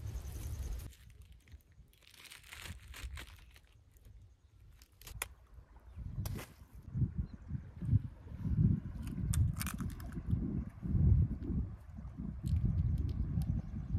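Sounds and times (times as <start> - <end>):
plastic bag crinkling: 0.9 - 4.1.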